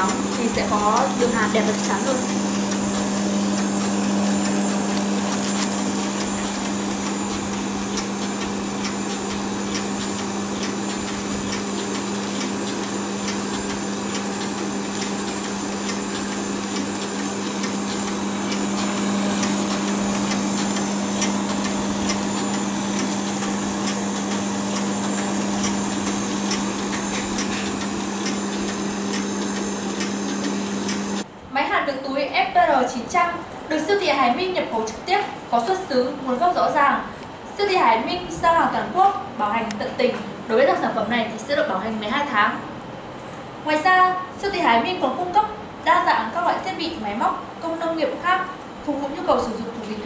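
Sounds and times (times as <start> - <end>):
machine motor humming with hiss: 0.0 - 31.3.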